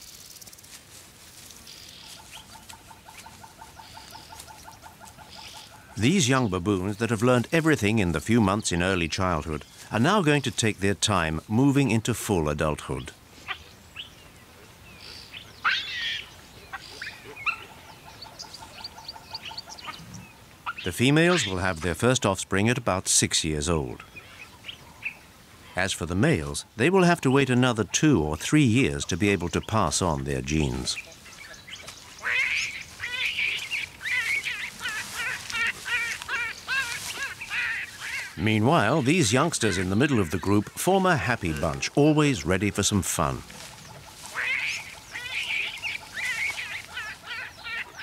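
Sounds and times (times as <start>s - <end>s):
high arched animal calls: 1.7s - 7.1s, 15.0s - 21.8s, 24.0s - 48.0s
squeaky animal call: 32.2s - 40.4s, 44.2s - 48.0s.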